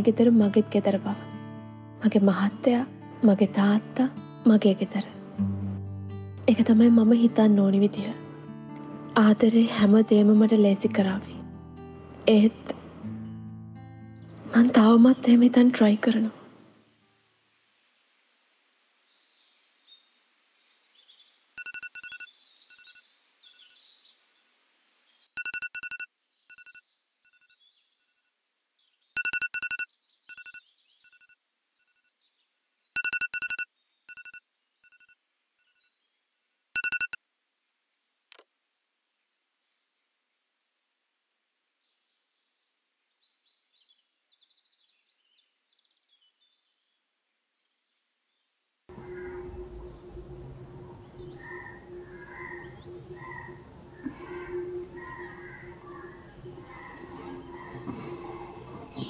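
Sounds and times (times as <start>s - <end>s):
mobile phone beeping ringtone: 21.6s - 23.0s, 25.4s - 26.8s, 29.2s - 31.4s, 33.0s - 35.2s, 36.8s - 37.2s
birds chirping faintly: 30.0s - 59.0s.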